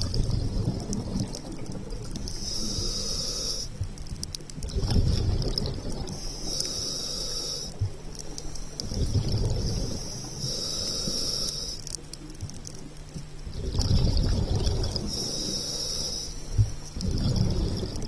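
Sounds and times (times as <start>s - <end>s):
bubbling exhale underwater: 0.0s - 3.0s, 4.6s - 6.2s, 8.9s - 10.8s, 13.5s - 15.5s, 17.0s - 18.0s
regulator hissing inhale: 2.2s - 3.8s, 6.1s - 12.0s, 14.9s - 18.0s.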